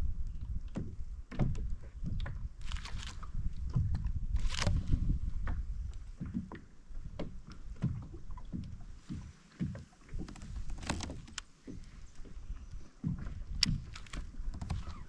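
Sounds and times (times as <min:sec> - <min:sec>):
water slapping against hull: 0:00.0 - 0:15.0
wind rumble on microphone: 0:00.0 - 0:15.0.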